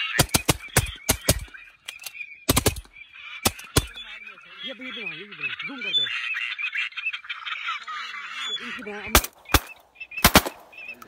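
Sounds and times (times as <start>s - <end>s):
waterfowl calling: 0.0s - 11.0s
shotgun blasts: 9.1s - 10.9s.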